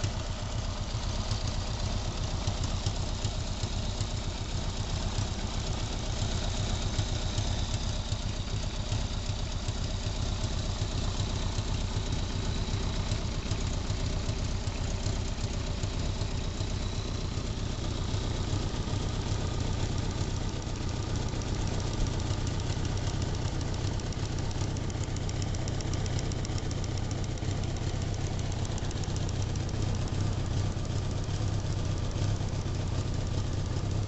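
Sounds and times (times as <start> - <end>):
motorcycle engine idling: 0.0 - 34.0.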